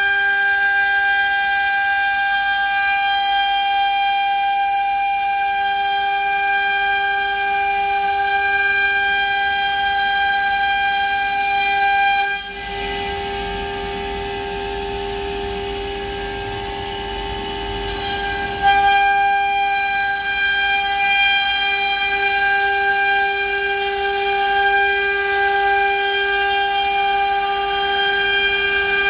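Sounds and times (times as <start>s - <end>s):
router spindle whining: 12.4s - 29.0s.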